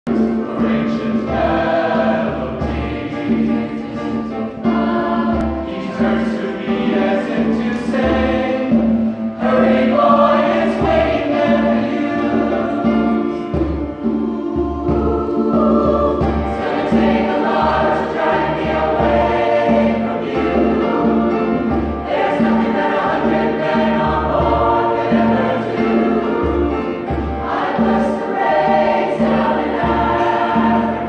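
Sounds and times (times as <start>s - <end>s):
mixed choir singing: 0.1s - 31.0s.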